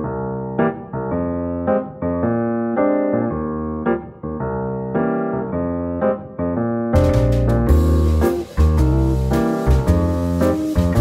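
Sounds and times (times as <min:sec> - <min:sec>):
keyboard playing held chords: 0:07.0 - 0:11.0.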